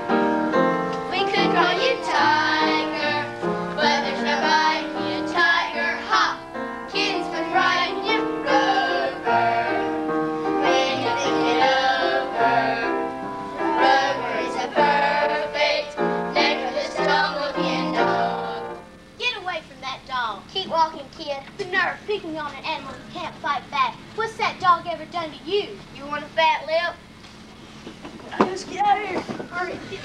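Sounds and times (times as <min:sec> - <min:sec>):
piano accompaniment: 0:00.0 - 0:19.1
children singing together: 0:01.0 - 0:18.8.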